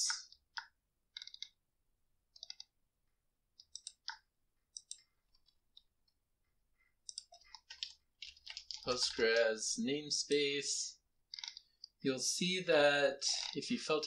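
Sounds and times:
computer mouse clicks: 0:00.0 - 0:01.6, 0:02.3 - 0:02.8, 0:03.6 - 0:06.2, 0:07.0 - 0:09.4, 0:11.3 - 0:12.0, 0:13.4 - 0:13.6.

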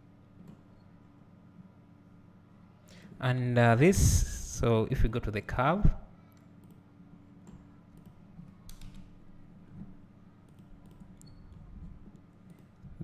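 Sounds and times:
low steady hum: 0:00.0 - 0:13.0
computer mouse clicks: 0:07.4 - 0:09.1, 0:10.4 - 0:12.8.

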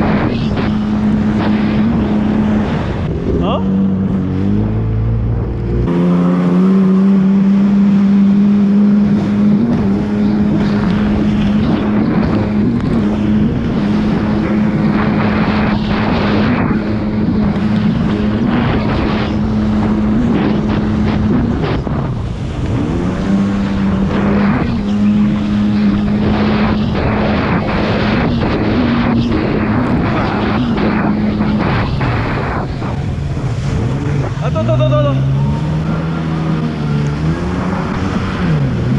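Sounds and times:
jet ski engine revving: 0:00.0 - 0:38.9.

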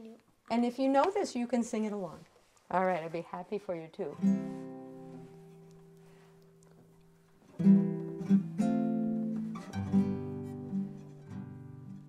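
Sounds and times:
classical guitar chords strummed: 0:04.1 - 0:12.0.

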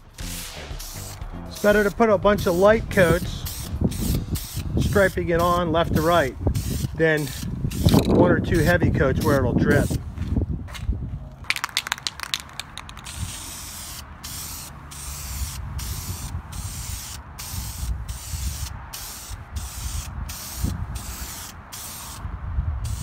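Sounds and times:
spray paint can hissing: 0:00.0 - 0:10.0, 0:11.5 - 0:23.0
sharp clicks: 0:11.5 - 0:13.2.

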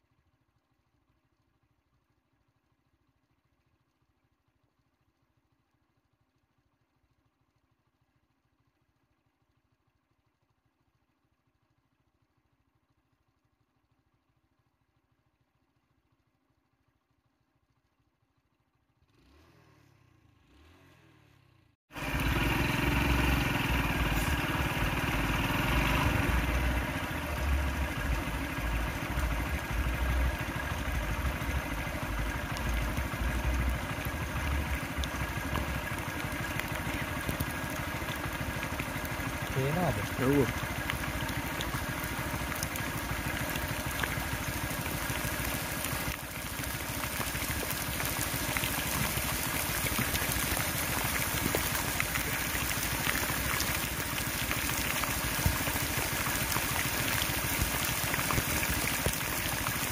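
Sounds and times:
vehicle engine idling: 0:18.0 - 0:59.9
heavy rain: 0:22.0 - 0:38.8
low rumble: 0:22.2 - 0:36.0.

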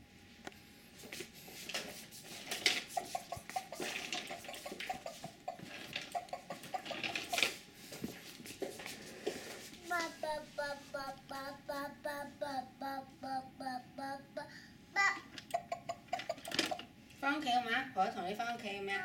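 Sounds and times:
toy rolling on hardwood floor: 0:01.6 - 0:10.1, 0:16.1 - 0:16.9.

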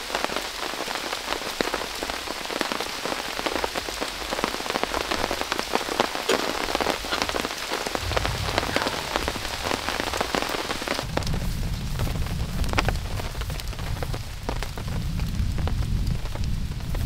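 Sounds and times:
heavy rain falling: 0:00.0 - 0:17.0
low rumble: 0:07.8 - 0:12.1.

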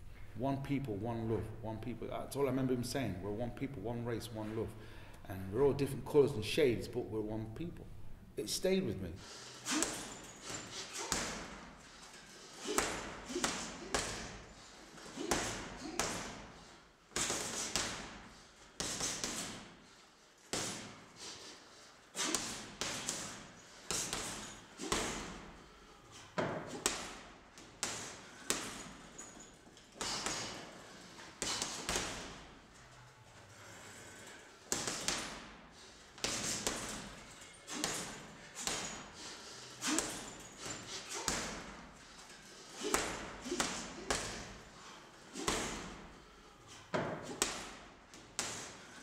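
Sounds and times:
punches thudding on punching bag: 0:09.6 - 0:11.7, 0:12.5 - 0:19.7, 0:20.5 - 0:21.0, 0:22.2 - 0:25.6, 0:26.4 - 0:29.2, 0:30.0 - 0:32.6, 0:34.7 - 0:35.6, 0:36.2 - 0:39.1, 0:39.8 - 0:41.9, 0:42.8 - 0:46.2, 0:46.9 - 0:48.8.

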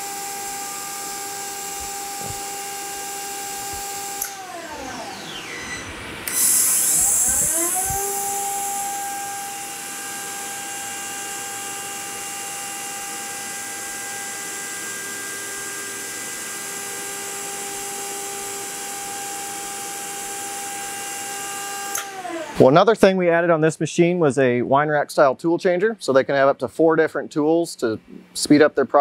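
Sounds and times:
spindle whining: 0:00.0 - 0:22.6.

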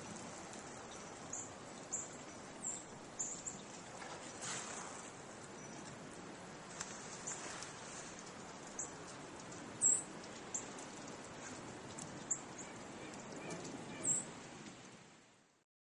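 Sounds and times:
steady outdoor hiss: 0:00.0 - 0:15.6
small birds chirping: 0:00.1 - 0:04.4, 0:05.4 - 0:06.1, 0:06.7 - 0:14.3.

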